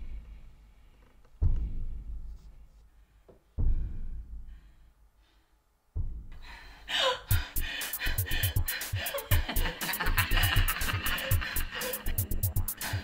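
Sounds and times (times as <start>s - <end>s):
deep booms: 1.4s - 2.5s, 3.5s - 4.9s, 5.9s - 8.8s.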